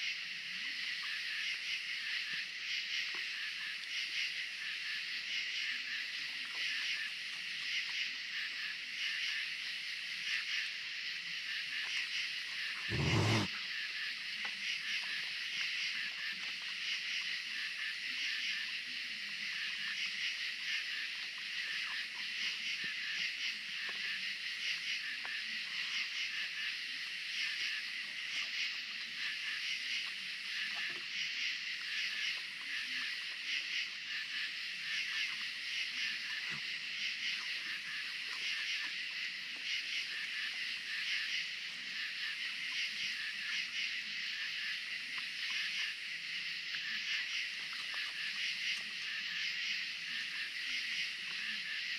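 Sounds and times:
night insects trilling: 0.0s - 51.9s.

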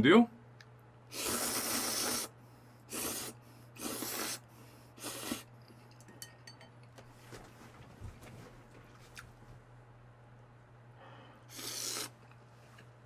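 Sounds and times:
man slurping noodles: 1.1s - 5.5s, 11.5s - 12.3s.

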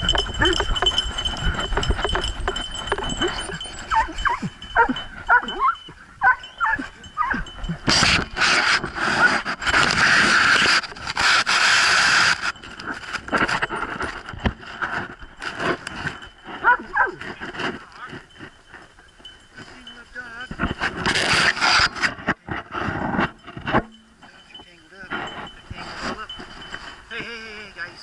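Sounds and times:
dogs whining: 0.0s - 7.9s, 16.5s - 17.3s
rough noise: 7.4s - 18.9s, 19.6s - 27.4s.

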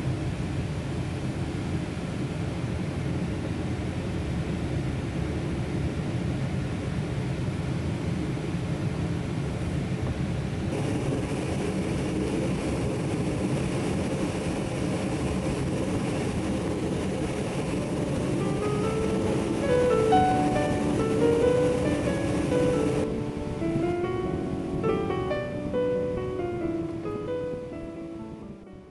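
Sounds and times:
aircraft cabin drone: 0.0s - 28.9s
faint music: 15.0s - 28.9s.

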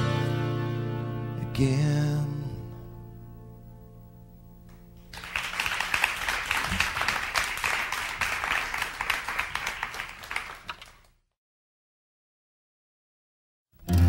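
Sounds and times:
audience applauding: 5.0s - 11.2s.

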